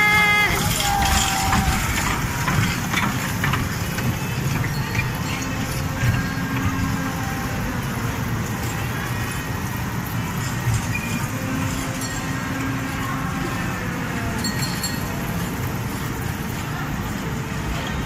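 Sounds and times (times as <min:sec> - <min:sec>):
amusement hall din: 0:00.0 - 0:04.1
mini train ride running past: 0:00.0 - 0:18.0.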